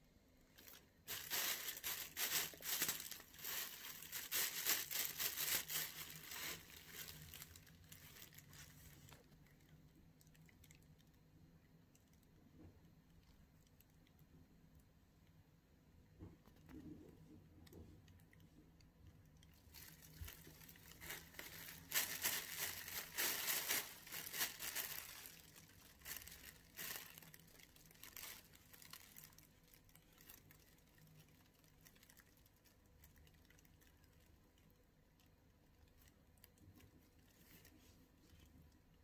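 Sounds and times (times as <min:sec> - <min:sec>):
plastic bag crinkling and rustling: 0:00.5 - 0:11.1, 0:19.4 - 0:38.9.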